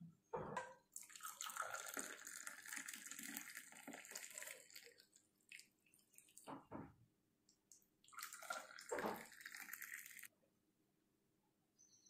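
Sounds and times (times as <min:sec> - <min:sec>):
tea pouring into glass: 0:01.0 - 0:06.7, 0:07.7 - 0:10.3.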